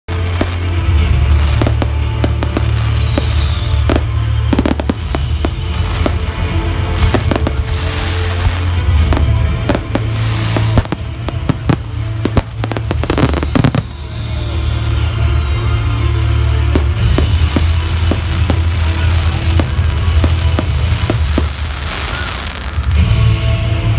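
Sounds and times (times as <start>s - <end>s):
crackling firework shells: 0.1s - 15.4s, 16.0s - 23.0s
firework bursts and bangs: 0.1s - 23.8s
faint falling whistle: 2.6s - 4.9s, 12.1s - 15.4s.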